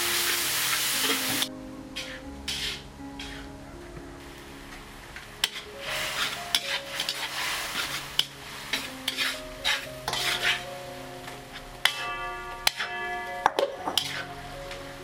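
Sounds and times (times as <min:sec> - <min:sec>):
liquid sizzling in a pan: 0:00.0 - 0:03.5, 0:04.2 - 0:15.0
metal spatula scraping a wok: 0:02.0 - 0:03.5, 0:05.4 - 0:10.9, 0:11.5 - 0:14.6.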